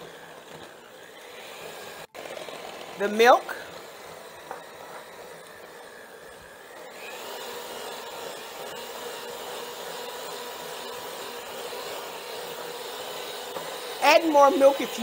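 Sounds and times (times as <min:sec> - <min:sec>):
electric hand mixer whining: 0:00.0 - 0:15.0.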